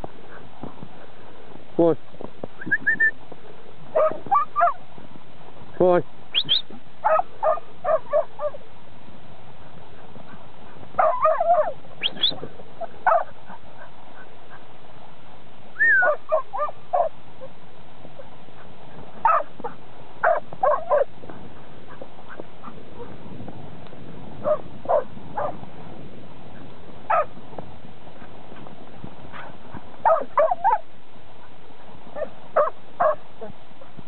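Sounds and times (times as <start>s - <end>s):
dog barking: 4.0s - 4.8s, 7.0s - 8.6s, 11.0s - 14.6s, 15.9s - 17.1s, 19.2s - 21.1s, 24.4s - 25.6s, 27.1s - 27.3s, 29.3s - 30.8s, 32.2s - 33.2s.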